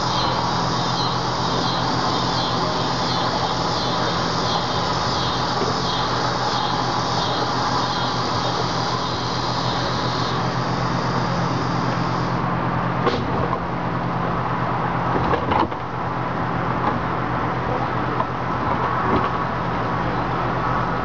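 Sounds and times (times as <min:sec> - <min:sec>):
high hiss: 0:00.0 - 0:12.6
electric motor hum and whir: 0:00.0 - 0:12.9.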